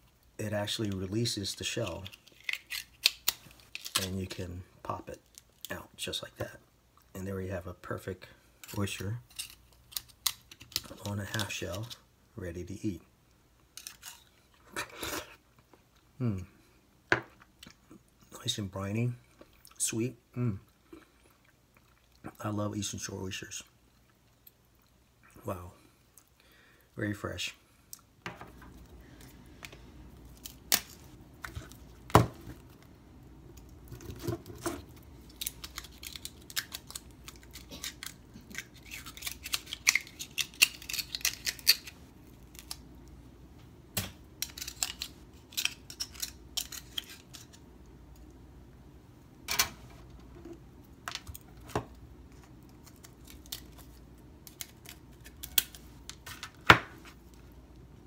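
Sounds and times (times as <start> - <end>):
oyster shell cracking: 2.0 - 4.1, 35.2 - 41.9.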